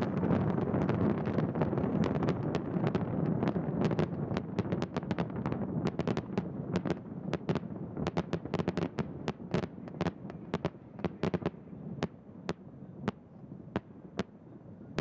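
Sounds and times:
fireworks cracks and bangs: 0.0 - 13.2.

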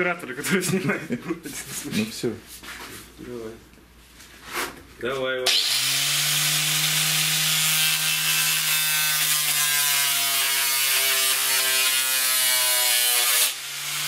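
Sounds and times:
angle grinder cutting wood: 5.5 - 14.0.

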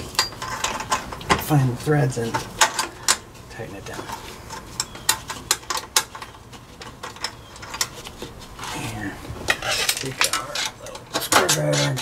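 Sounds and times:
metal fitting clicking and rubbing: 3.8 - 8.3, 9.5 - 12.0.

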